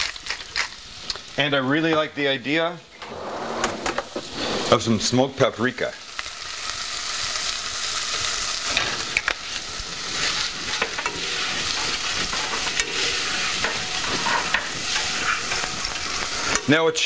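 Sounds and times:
vegetables sizzling in a saucepan: 0.0 - 2.7, 4.0 - 17.0
spoon scraping a pan: 8.4 - 16.7.

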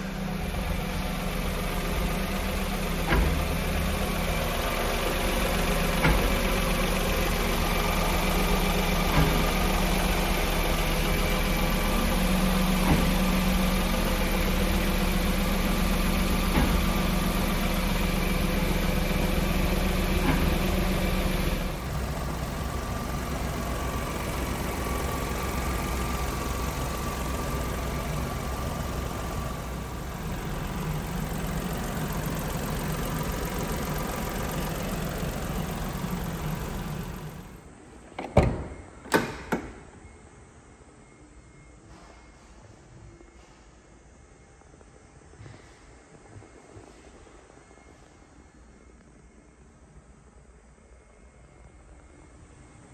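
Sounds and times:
small truck engine idling: 0.0 - 38.0.

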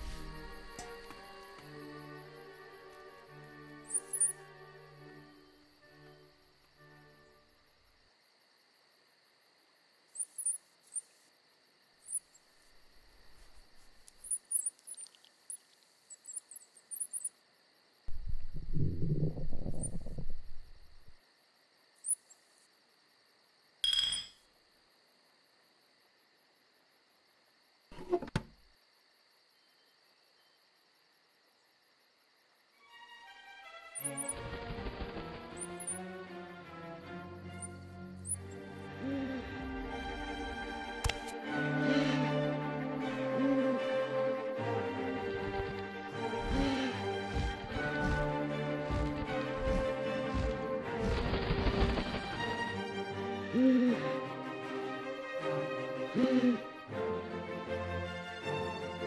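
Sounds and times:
faint high chirps: 10.1 - 11.2, 14.0 - 17.4
sharp ringing clink: 23.8 - 24.4.

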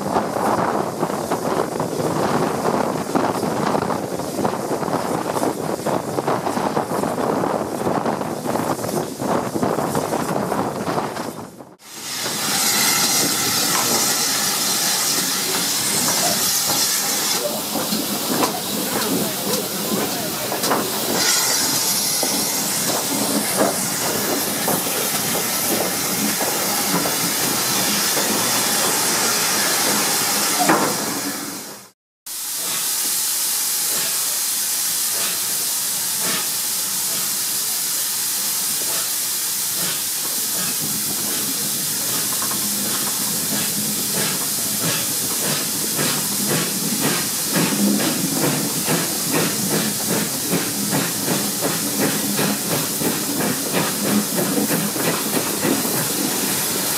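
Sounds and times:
regular train wheel beat: 0.0 - 31.9, 32.6 - 56.9
steam train hissing and rushing air: 0.0 - 56.9.

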